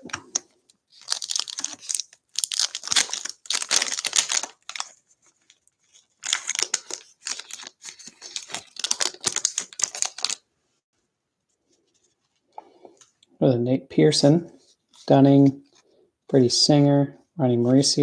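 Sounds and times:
crinkly wrapper tearing: 0:00.2 - 0:10.4.

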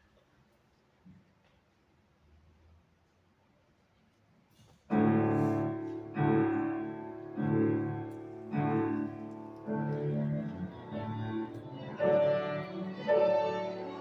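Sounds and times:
heavy piano chords: 0:04.9 - 0:14.0
violin playing: 0:05.0 - 0:14.0.

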